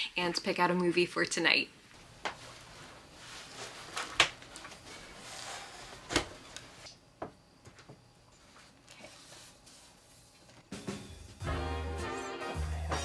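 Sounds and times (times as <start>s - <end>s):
clothes rustling: 2.0s - 6.9s.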